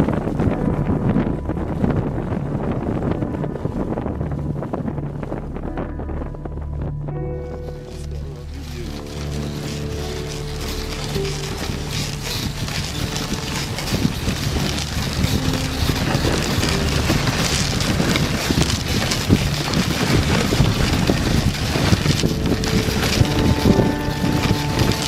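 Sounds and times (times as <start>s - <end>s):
wind rumbling on microphone: 0.0s - 25.0s
sled runners hissing over snow: 7.7s - 25.0s.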